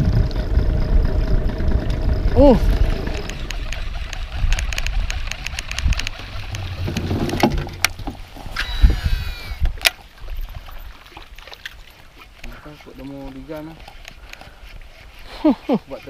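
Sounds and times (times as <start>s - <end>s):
low rumble: 0.0s - 9.8s
reel brake whine: 0.0s - 9.9s
fishing reel ticking: 0.3s - 16.0s
sharp reel click: 3.2s - 6.7s.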